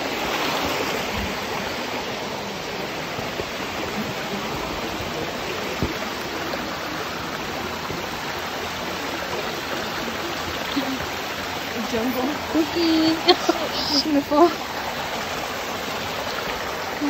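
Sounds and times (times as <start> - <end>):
creek running over rocks: 0.0 - 17.0.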